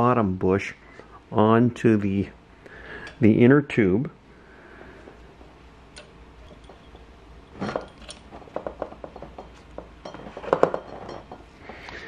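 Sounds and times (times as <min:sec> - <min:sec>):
metal parts knock: 0:06.0 - 0:11.4
light metal clinks with ringing: 0:06.4 - 0:08.2.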